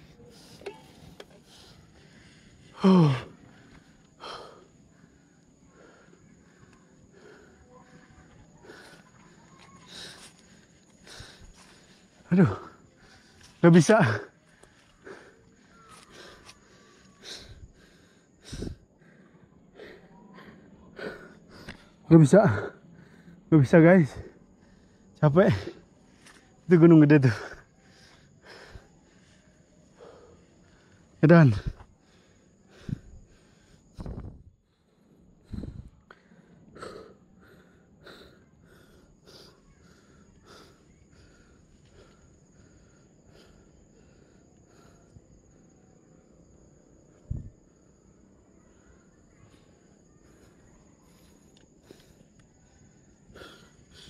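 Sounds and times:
man breathing heavily: 0:00.0 - 0:54.0
man panting hard: 0:01.2 - 0:48.2, 0:48.8 - 0:54.0.

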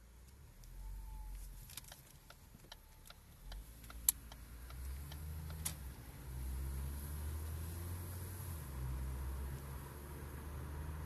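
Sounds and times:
wind and road rumble: 0:00.0 - 0:11.0
light clicks and ticks: 0:00.2 - 0:06.0.

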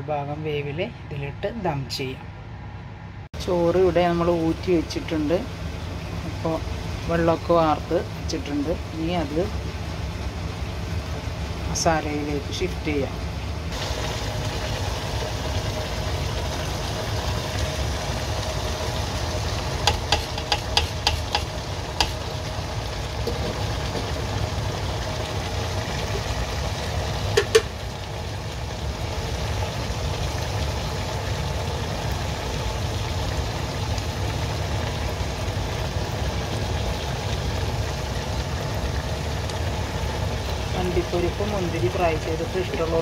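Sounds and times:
low kitchen hum: 0:00.0 - 0:43.0
utensil tapping pot: 0:19.8 - 0:22.2, 0:27.4 - 0:27.7.

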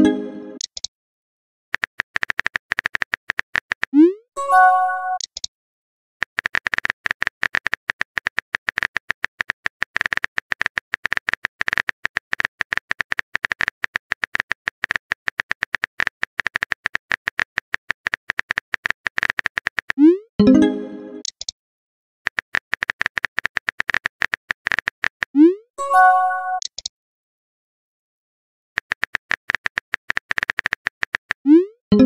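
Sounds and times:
keyboard typing clicks: 0:01.8 - 0:03.9, 0:05.1 - 0:05.5, 0:06.3 - 0:21.6, 0:22.3 - 0:25.4, 0:26.5 - 0:26.9, 0:28.8 - 0:32.0.

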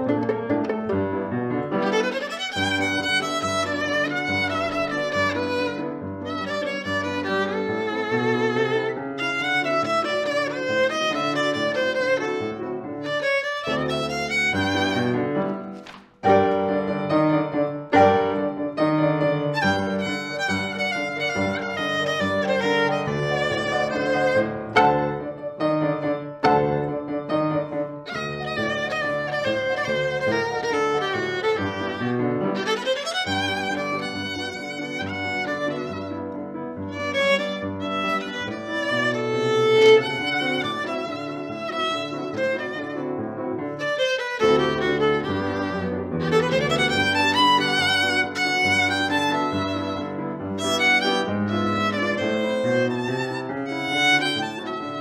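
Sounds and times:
violin and piano tango: 0:00.0 - 0:55.0.

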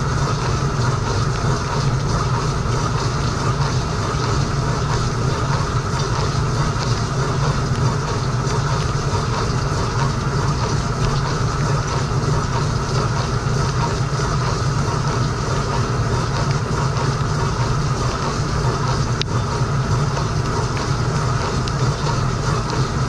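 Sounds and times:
dishwasher pump hum: 0:00.0 - 0:23.0.

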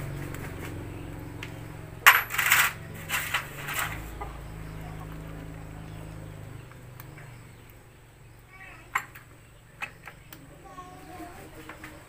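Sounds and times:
steady low hum: 0:00.0 - 0:12.0
metal tools clinking: 0:02.0 - 0:04.3.

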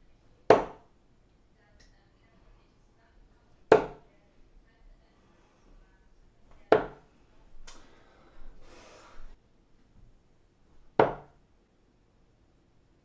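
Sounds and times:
darts thudding into dartboard: 0:00.5 - 0:00.8, 0:03.7 - 0:04.0, 0:06.7 - 0:07.0, 0:10.9 - 0:11.4
soft breathy noise: 0:01.9 - 0:09.4.

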